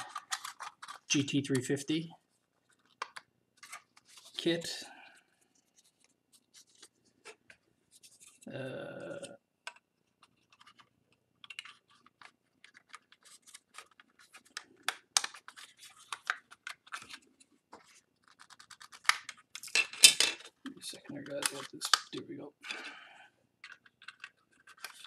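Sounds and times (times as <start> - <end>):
plastic model parts clicking: 21.2 - 22.2, 23.6 - 25.0.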